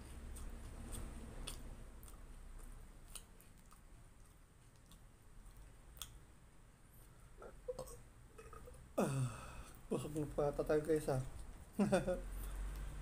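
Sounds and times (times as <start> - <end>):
chewing crunchy food: 0.0 - 6.2.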